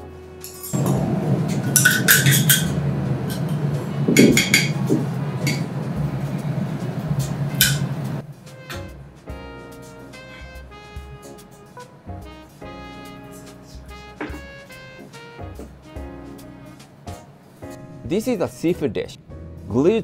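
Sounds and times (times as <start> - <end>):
metal utensils clattering on griddle: 0.4 - 4.8
low hum: 0.7 - 8.4.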